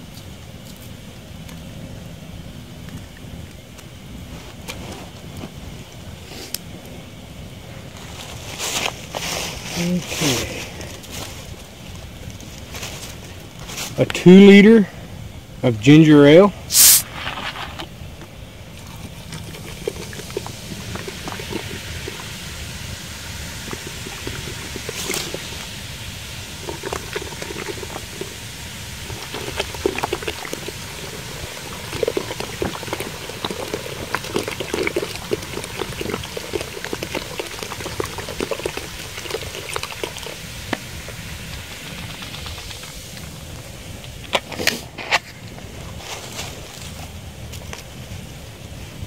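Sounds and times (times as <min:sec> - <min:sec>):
soda pouring and splashing: 0:15.9 - 0:44.6
small fizz pops: 0:16.7 - 0:45.3.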